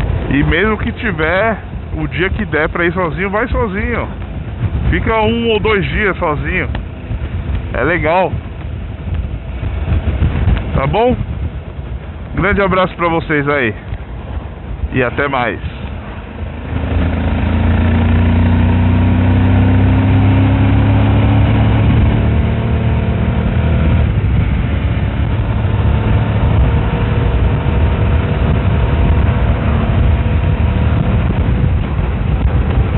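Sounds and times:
rush of noise: 0:00.0 - 0:32.9
motorcycle engine pulling away: 0:16.5 - 0:32.9.

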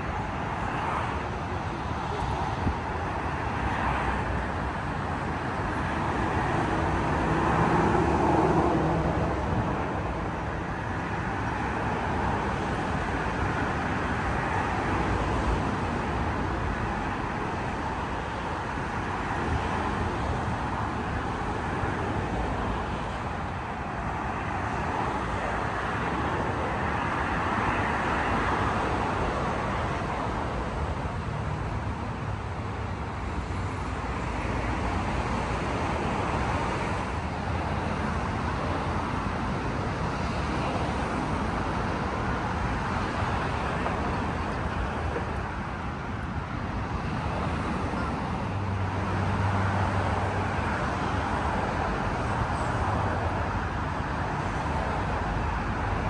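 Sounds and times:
cars rushing past: 0:00.0 - 0:56.0.

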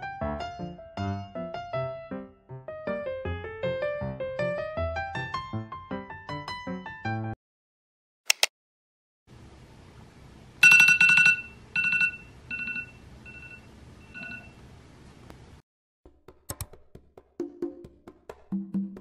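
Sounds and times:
clicks: 0:08.3 - 0:08.5
alarm tone two-tone beeps: 0:10.6 - 0:14.5.

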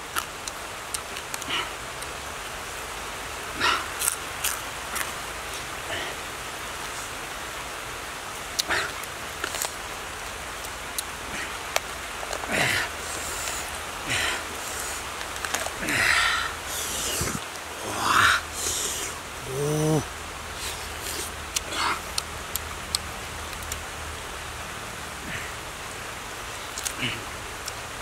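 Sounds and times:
wet chewing and smacking: 0:00.0 - 0:02.2, 0:04.0 - 0:05.6, 0:20.6 - 0:23.8, 0:26.7 - 0:27.0
steady hiss: 0:00.0 - 0:28.0
person humming: 0:16.7 - 0:21.8.

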